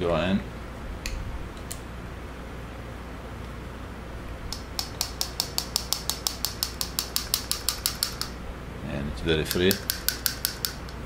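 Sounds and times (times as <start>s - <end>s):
valve part rattling with metallic clicks: 4.5s - 8.4s, 9.4s - 11.0s.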